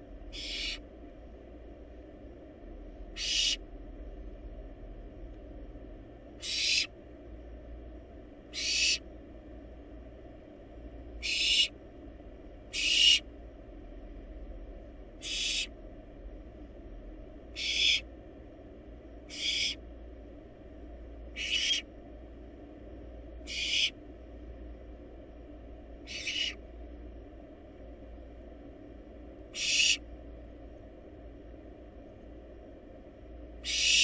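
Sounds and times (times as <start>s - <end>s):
owl chick hissing screeches: 0.3s - 0.8s, 3.2s - 3.6s, 6.4s - 6.9s, 8.5s - 9.0s, 11.2s - 11.7s, 12.7s - 13.2s, 15.2s - 15.7s, 17.6s - 18.0s, 19.3s - 19.8s, 21.4s - 21.8s, 23.5s - 24.0s, 26.1s - 26.6s, 29.5s - 30.0s, 33.6s - 34.0s.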